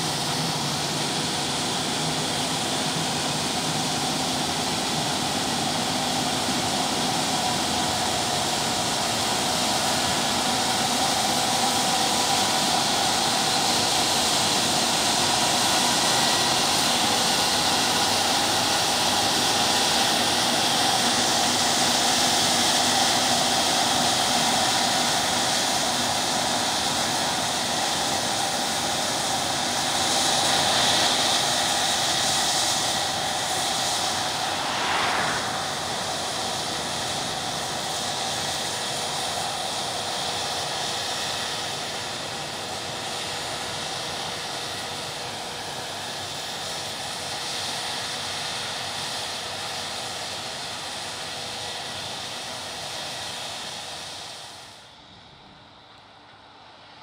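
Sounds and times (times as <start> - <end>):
combine harvester running: 0.0 - 55.4.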